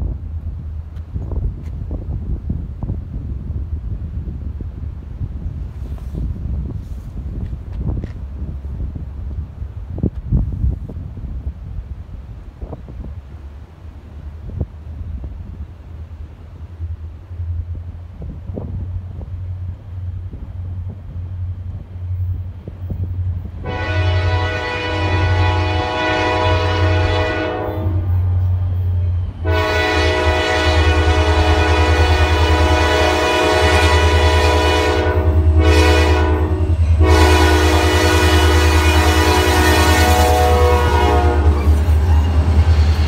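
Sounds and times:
low rumble of approaching train: 0:00.0 - 0:43.0
locomotive horn blasts: 0:23.6 - 0:28.3, 0:29.4 - 0:42.5.

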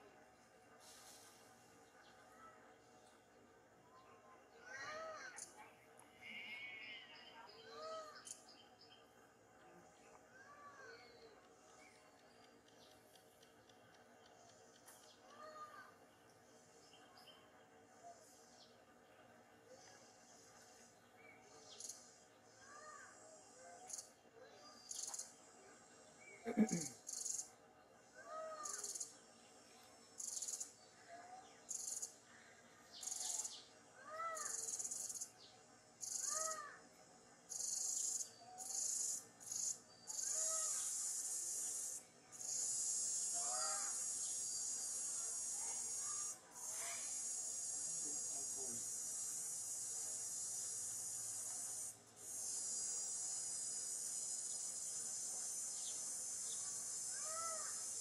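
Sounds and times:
insects buzzing high-pitched: 0:24.9 - 0:25.3, 0:26.4 - 0:27.5, 0:28.5 - 0:29.2, 0:30.2 - 0:30.8, 0:31.7 - 0:32.2, 0:33.0 - 0:33.7, 0:34.3 - 0:35.3, 0:35.9 - 0:58.0.

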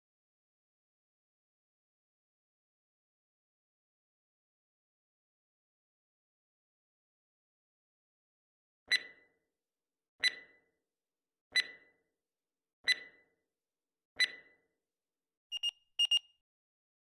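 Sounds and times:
clipped alarm beeps: 0:08.9 - 0:09.3, 0:10.2 - 0:10.6, 0:11.5 - 0:11.9, 0:12.8 - 0:13.2, 0:14.2 - 0:14.6, 0:15.5 - 0:16.4
short timer beeps: 0:08.9 - 0:09.3, 0:10.2 - 0:10.6, 0:11.5 - 0:11.9, 0:12.9 - 0:13.2, 0:14.2 - 0:14.6, 0:15.5 - 0:16.4.

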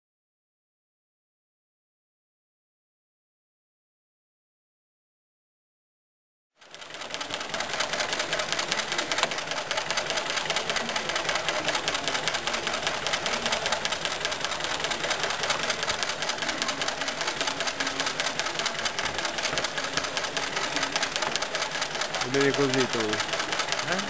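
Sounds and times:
sewing machine mechanical clatter: 0:06.6 - 0:24.0.

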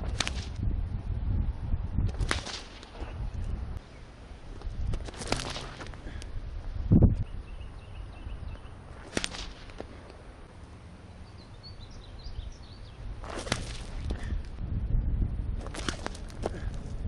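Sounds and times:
wind rumble on microphone: 0:00.0 - 0:10.4, 0:11.2 - 0:17.0
sling cracking sharply: 0:02.2 - 0:03.0, 0:09.0 - 0:10.0
faint bird chirps: 0:07.1 - 0:08.8.

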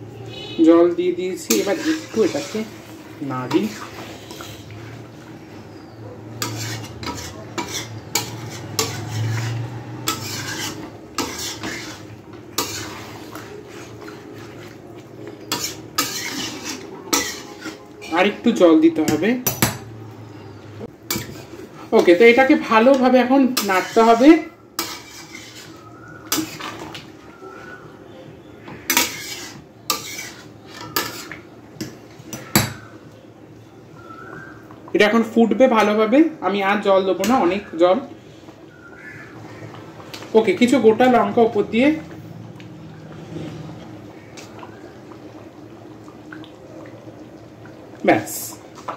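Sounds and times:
metal spatula scraping pan: 0:01.2 - 0:05.1, 0:06.3 - 0:14.8, 0:15.4 - 0:18.5, 0:21.1 - 0:27.0, 0:28.7 - 0:32.8.

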